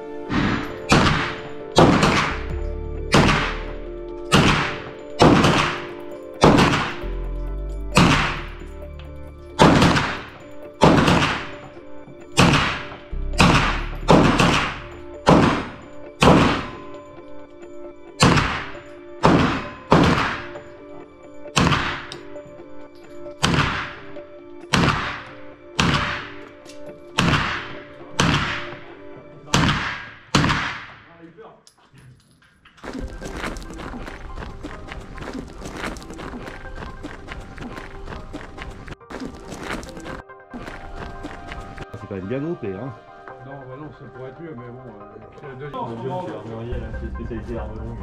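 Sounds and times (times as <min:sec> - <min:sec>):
background music: 0:00.0 - 0:48.0
carbine gunshots: 0:00.3 - 0:02.5, 0:03.1 - 0:07.0, 0:08.0 - 0:08.6, 0:09.6 - 0:11.7, 0:12.4 - 0:16.8, 0:18.2 - 0:20.6, 0:21.6 - 0:22.2, 0:23.4 - 0:24.1, 0:24.7 - 0:26.6, 0:27.2 - 0:28.9, 0:29.5 - 0:31.1.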